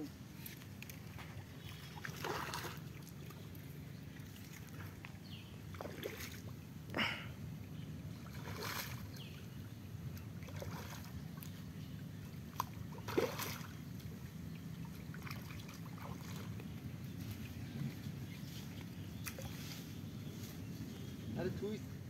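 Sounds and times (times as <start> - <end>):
low steady hum: 0.0 - 22.0
fish splashing in water: 1.0 - 3.3, 5.7 - 6.5, 8.2 - 9.2, 10.4 - 11.5, 12.5 - 13.8, 14.8 - 16.7.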